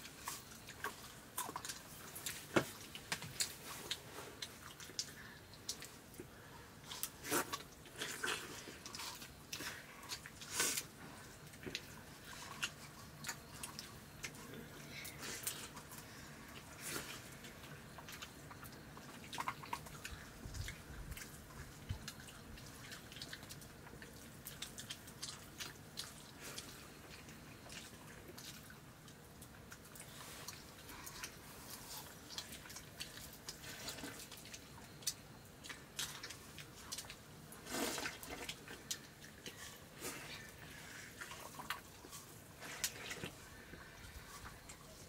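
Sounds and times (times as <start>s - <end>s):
chewing: 0.0s - 45.0s
slurp: 37.6s - 45.0s.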